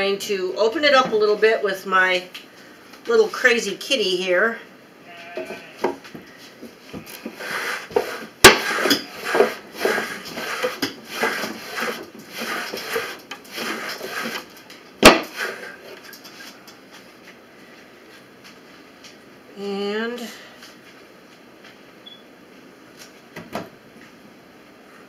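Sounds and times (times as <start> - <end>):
scratchy rubbing of wool picker: 7.0 - 14.6, 15.2 - 16.0
sharp wooden knocks: 8.0 - 14.4, 15.0 - 15.5.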